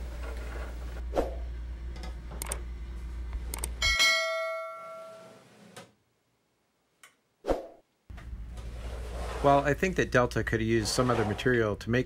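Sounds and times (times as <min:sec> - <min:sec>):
steady low hum: 0:00.0 - 0:04.1
bell-like ding: 0:03.8 - 0:05.4.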